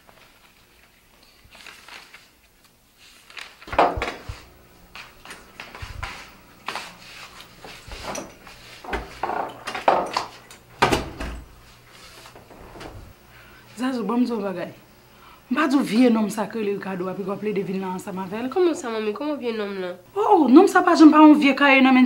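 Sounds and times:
paper rustling: 0:00.0 - 0:09.3.

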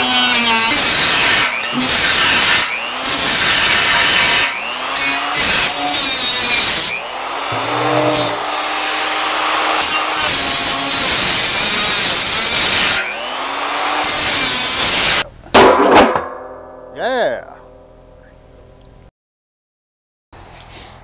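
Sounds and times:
angle grinder cutting metal: 0:00.0 - 0:15.2.

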